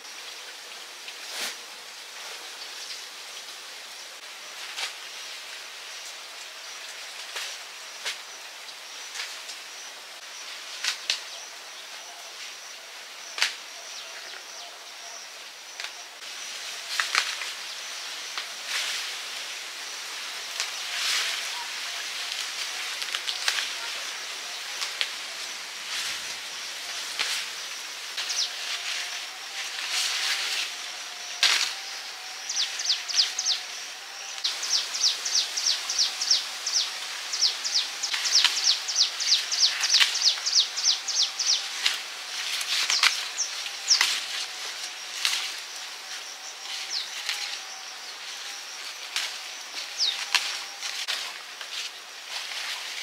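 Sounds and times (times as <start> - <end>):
outdoor background noise: 0.0 - 53.0
birds chirping: 26.2 - 29.2, 30.9 - 51.0.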